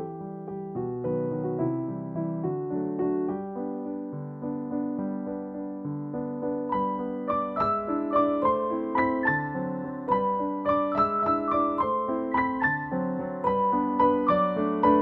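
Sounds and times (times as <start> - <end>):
piano melody: 0.0 - 15.0.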